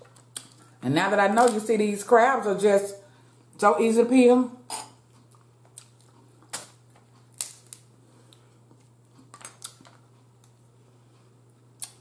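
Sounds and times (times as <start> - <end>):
crab shells cracking: 5.8 - 7.9, 9.2 - 10.0.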